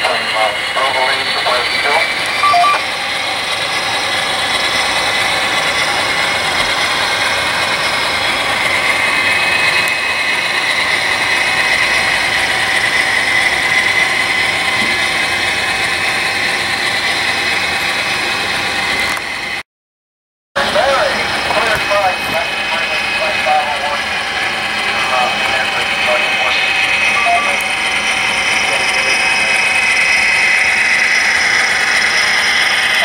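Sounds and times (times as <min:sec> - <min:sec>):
model train whirring and clattering: 0:00.0 - 0:19.6, 0:20.6 - 0:33.0.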